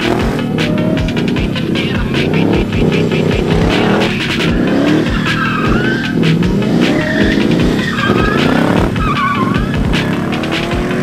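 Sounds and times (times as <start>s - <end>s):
background music: 0.0s - 11.0s
car engine revving: 0.0s - 11.0s
tires squealing: 0.0s - 11.0s.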